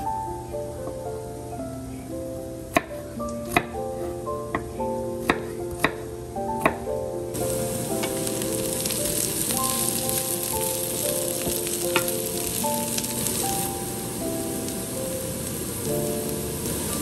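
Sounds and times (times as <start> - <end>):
vegetables sizzling in oil: 7.4 - 17.0.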